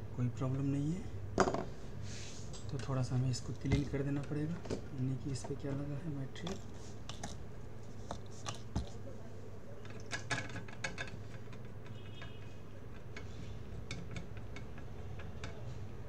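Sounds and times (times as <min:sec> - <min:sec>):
low electrical hum: 0:00.0 - 0:16.0
small tools clicking on workbench: 0:09.8 - 0:16.0.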